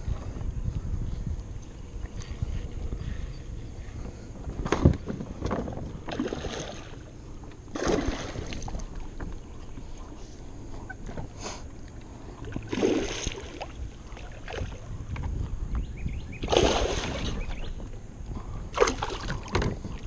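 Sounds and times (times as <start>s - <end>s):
water sloshing: 4.8s - 7.1s, 7.7s - 10.1s, 11.8s - 14.9s, 16.4s - 18.0s, 18.7s - 20.0s
fish thrashing and splashing: 7.7s - 9.0s, 12.5s - 14.8s, 16.4s - 17.4s, 18.8s - 19.7s.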